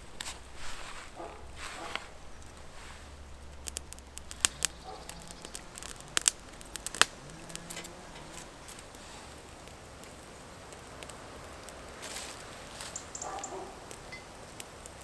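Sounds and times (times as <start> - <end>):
twigs crackling in campfire: 0.0 - 15.0.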